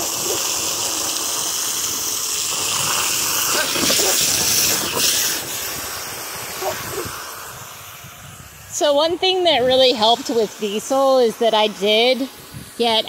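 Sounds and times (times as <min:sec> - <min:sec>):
hose spraying water into pool: 0:00.0 - 0:13.0.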